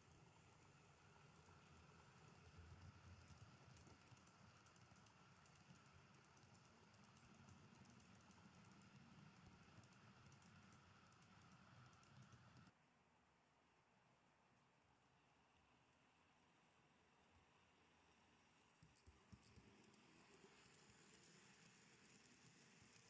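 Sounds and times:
model train wheels clattering: 0:18.8 - 0:23.0.

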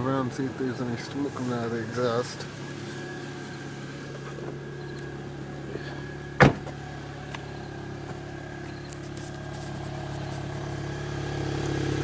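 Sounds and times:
car engine idling: 0:00.0 - 0:12.0
car door slamming: 0:05.7 - 0:08.3.

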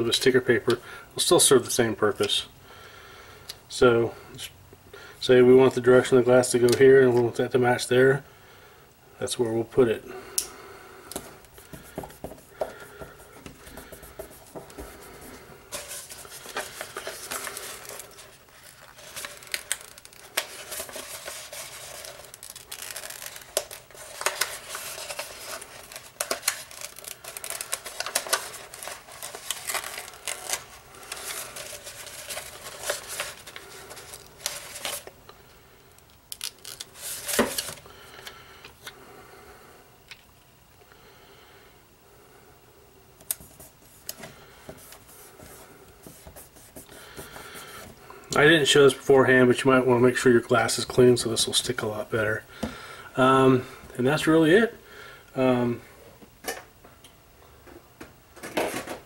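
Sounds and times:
sticker paper rustling and crackling: 0:13.7 - 0:35.1.

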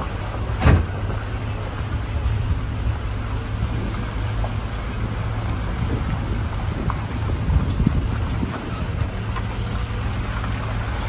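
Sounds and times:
vehicle engine and tyre rumble: 0:00.0 - 0:11.0
loud thump: 0:00.6 - 0:01.0.

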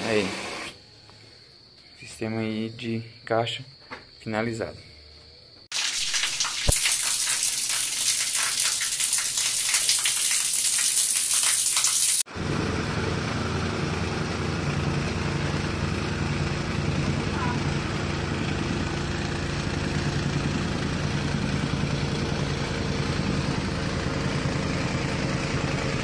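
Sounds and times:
water spraying against wall: 0:05.7 - 0:12.3
tamping rammer engine running: 0:12.3 - 0:26.0.

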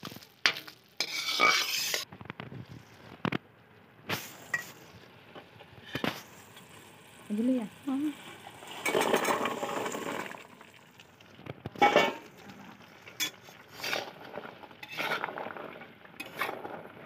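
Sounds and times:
metal spatula scraping a pan: 0:00.4 - 0:02.1, 0:08.7 - 0:10.3, 0:11.8 - 0:12.3, 0:13.1 - 0:17.0
fried pieces pouring into sizzling syrup: 0:06.1 - 0:17.0.

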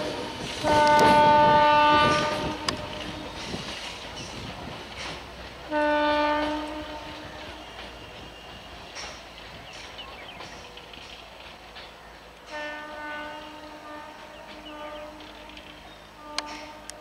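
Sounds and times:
train horn blast: 0:00.0 - 0:03.4, 0:05.6 - 0:08.8, 0:12.4 - 0:17.0
train rumbling on track: 0:00.0 - 0:17.0.

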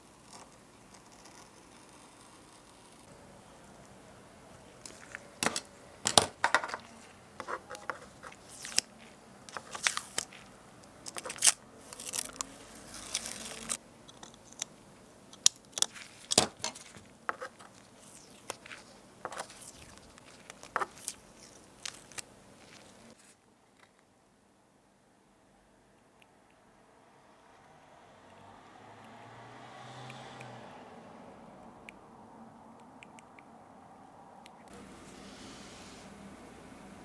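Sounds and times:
masking tape peeling: 0:07.5 - 0:14.7.

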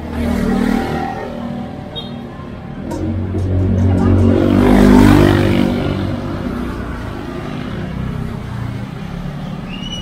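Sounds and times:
vehicle passing by: 0:02.6 - 0:10.0.

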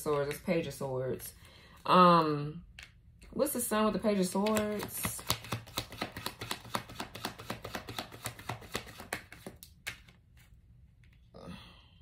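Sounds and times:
cards being shuffled: 0:00.0 - 0:00.6, 0:04.1 - 0:11.2.

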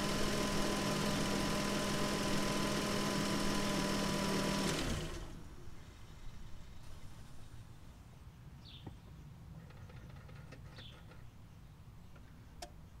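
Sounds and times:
car engine idling: 0:00.0 - 0:06.0
bird chirps: 0:05.6 - 0:10.0.

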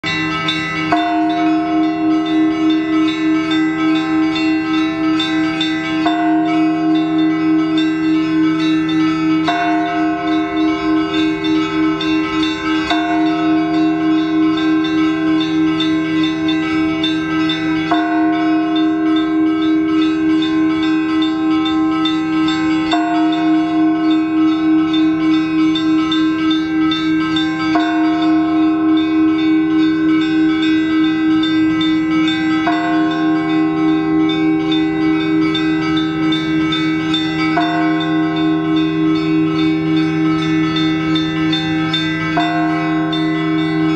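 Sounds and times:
church bells ringing: 0:00.0 - 0:43.9
large bell humming: 0:00.0 - 0:43.9.

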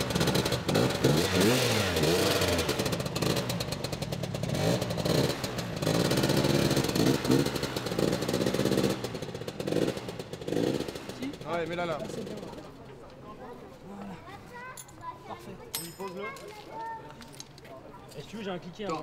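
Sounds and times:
scooter engine revving: 0:00.0 - 0:12.8.

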